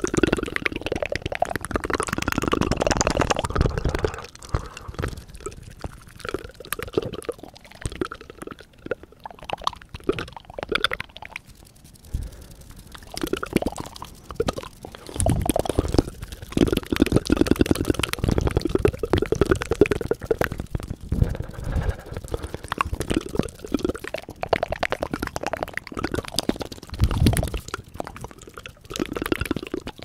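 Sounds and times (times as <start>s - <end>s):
wet mouth clicks and smacks: 0.0s - 30.0s.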